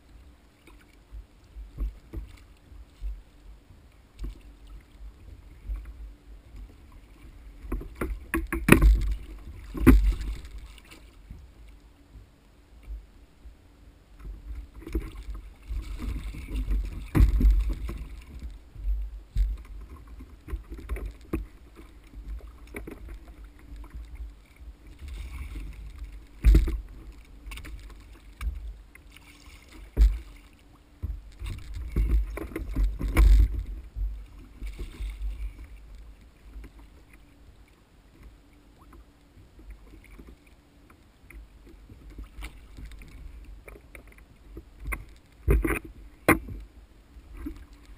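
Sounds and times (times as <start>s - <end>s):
water splashing against kayak hull: 0.0s - 13.1s, 14.1s - 47.9s
knocks and thumps on kayak: 7.6s - 11.0s, 14.7s - 24.2s, 25.1s - 30.4s, 31.0s - 35.8s, 43.9s - 46.7s.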